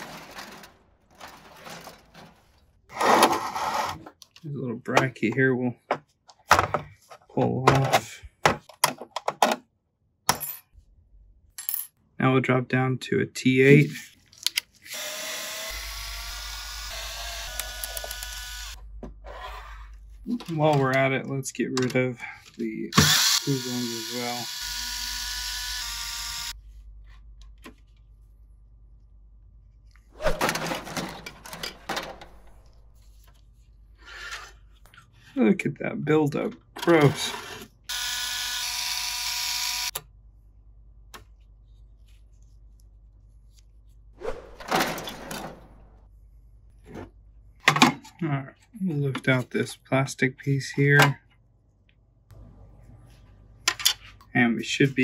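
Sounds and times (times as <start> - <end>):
electric duster motor whine: 14.9 - 18.8, 23.0 - 26.5, 37.9 - 39.9
electric screwdriver running: 14.9 - 18.8, 23.0 - 26.5, 37.9 - 40.0.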